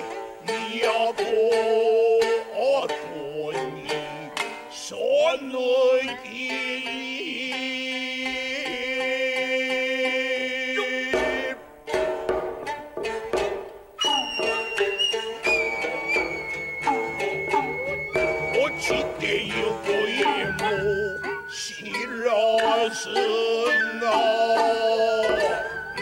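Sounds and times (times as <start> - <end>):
shamisen plucking: 0.0 - 26.0
people chanting: 16.9 - 26.0.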